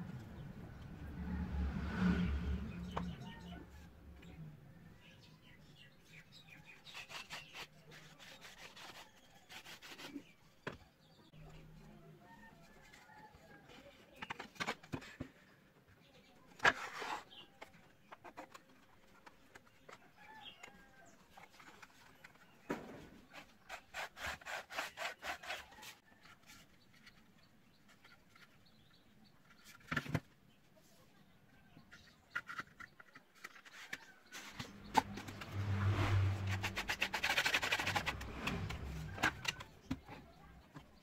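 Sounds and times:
wood rubbing strokes: 33.4s - 40.1s.

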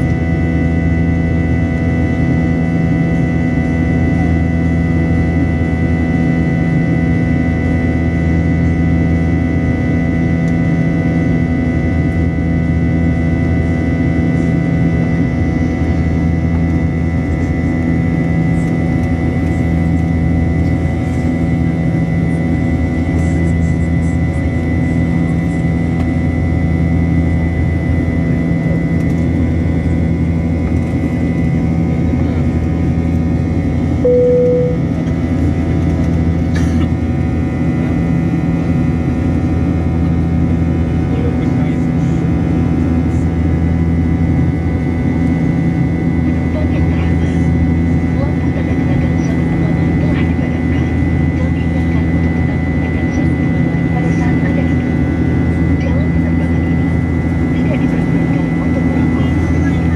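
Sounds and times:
brief single tone: 34.0s - 35.0s.

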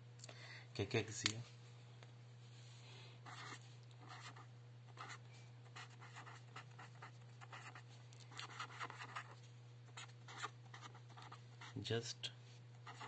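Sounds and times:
marker scratching on paper: 3.3s - 5.2s, 5.8s - 9.4s, 10.0s - 11.8s.

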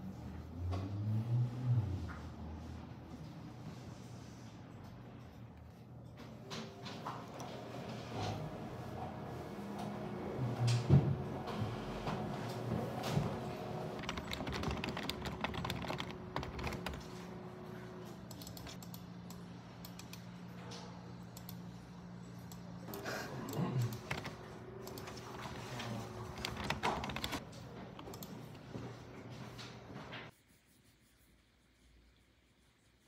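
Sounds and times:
computer keyboard key clicks: 14.0s - 17.0s.

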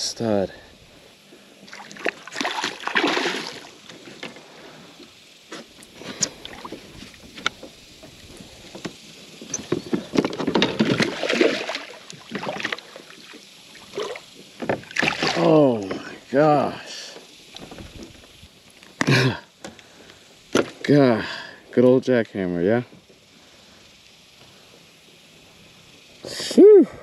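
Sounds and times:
fish splashing at the surface: 1.6s - 3.9s, 10.2s - 16.0s.

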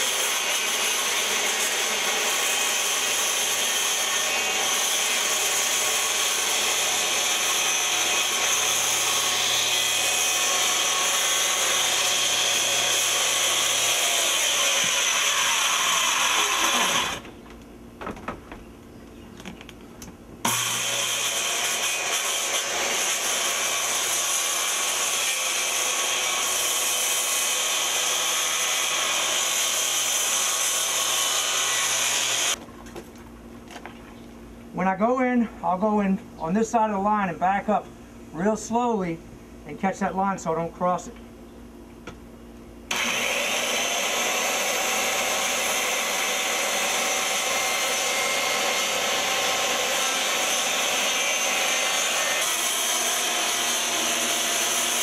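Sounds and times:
electric power saw cutting: 0.0s - 17.3s, 20.4s - 32.6s, 42.9s - 55.0s.

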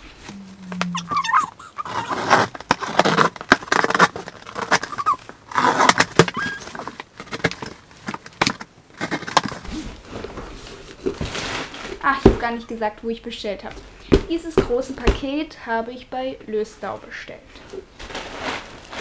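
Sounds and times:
cardboard rustling and scraping: 0.0s - 12.2s, 18.0s - 19.0s
packing tape tearing: 1.2s - 9.6s, 18.0s - 19.0s.

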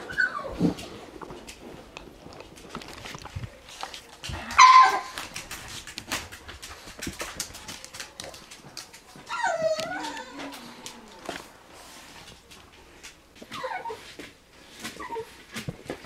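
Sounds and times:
puppy yelping: 0.0s - 0.6s, 4.6s - 5.2s, 9.3s - 10.6s, 13.5s - 14.0s
puppy whining: 0.0s - 1.0s, 9.2s - 11.4s, 13.4s - 15.7s
puppies scuffling: 0.0s - 16.0s.

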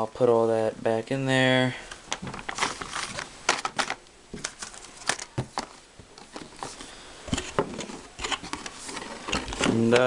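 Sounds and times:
cardboard and paper rustling: 2.1s - 10.0s.

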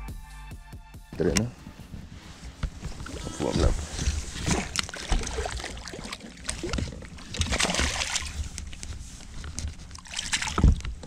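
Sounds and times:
water sloshing against boat: 2.1s - 11.0s
loud water splash: 7.3s - 8.3s.

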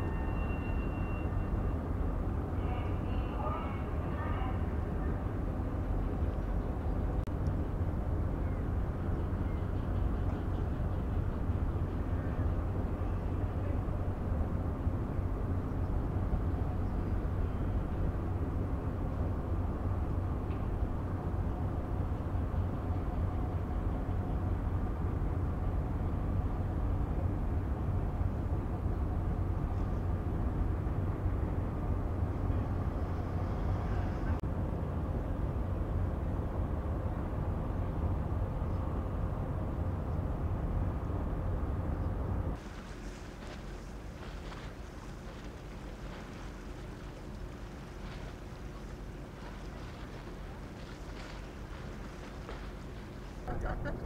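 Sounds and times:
faint engine hum: 0.0s - 54.0s
ship diesel engines rumbling: 35.3s - 54.0s.

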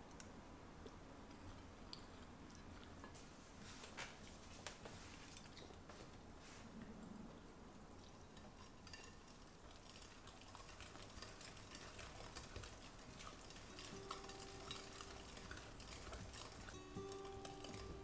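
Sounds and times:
utensils clinking in a bowl: 8.3s - 18.0s
soft music with held notes: 10.8s - 18.0s.

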